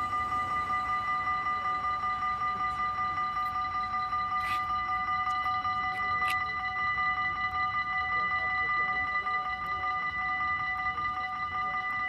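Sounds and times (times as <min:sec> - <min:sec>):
train passing: 0:00.0 - 0:04.6
level-crossing bell ringing: 0:00.0 - 0:12.0.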